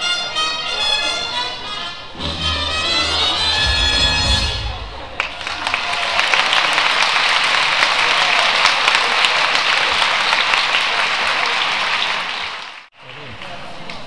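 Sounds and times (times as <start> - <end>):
audience applauding: 4.6 - 14.0.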